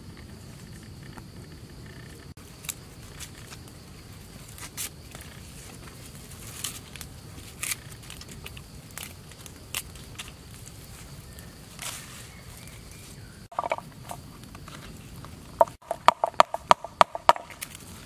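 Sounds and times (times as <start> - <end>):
herb leaves rustling: 2.4 - 15.5.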